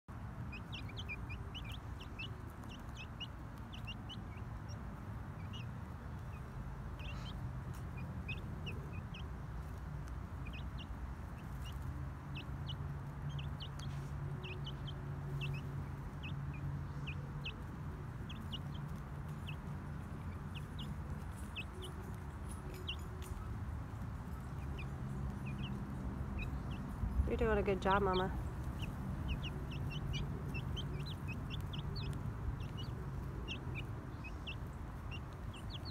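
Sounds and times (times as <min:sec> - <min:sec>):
chicks peeping: 0:00.1 - 0:35.9.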